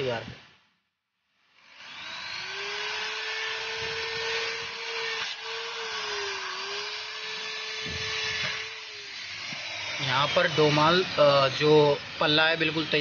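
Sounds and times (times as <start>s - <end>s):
electric drill whining: 1.4s - 13.0s.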